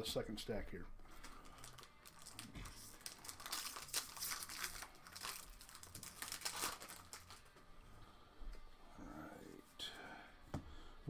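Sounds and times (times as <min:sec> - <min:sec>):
foil wrapper crinkling and tearing: 0:01.1 - 0:07.6.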